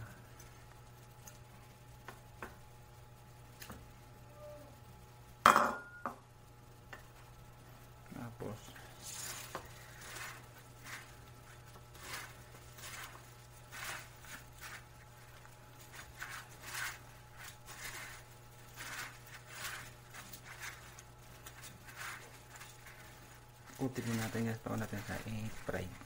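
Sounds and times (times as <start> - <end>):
steady low hum: 0.0 - 26.0
rustling and scraping of breadcrumbs: 7.0 - 26.0.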